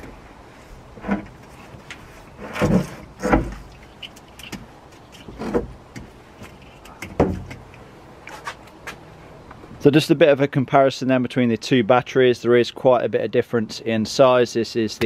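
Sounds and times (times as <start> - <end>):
dull thumps: 4.5 - 7.7.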